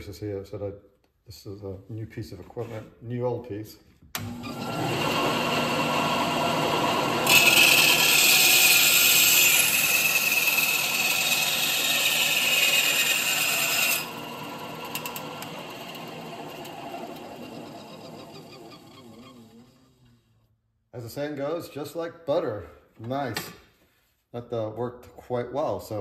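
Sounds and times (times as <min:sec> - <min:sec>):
bandsaw running: 0:04.2 - 0:20.2.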